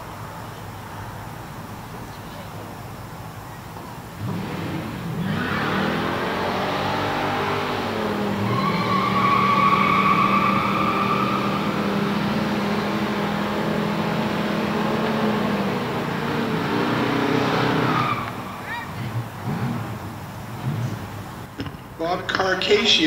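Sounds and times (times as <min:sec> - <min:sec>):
car engines revving: 0:00.0 - 0:21.6
tyres squealing: 0:07.3 - 0:13.9, 0:14.7 - 0:20.8.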